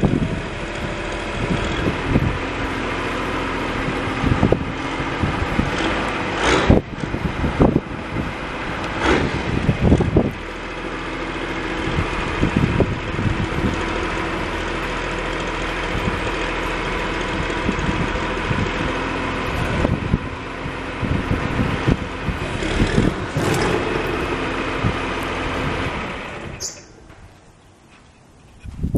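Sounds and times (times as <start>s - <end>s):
diesel engine idling: 0.0s - 27.9s.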